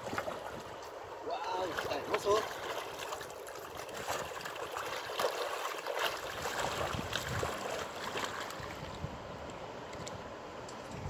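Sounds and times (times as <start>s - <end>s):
river water running over stones: 0.0s - 10.8s
fish splashing: 1.6s - 8.8s.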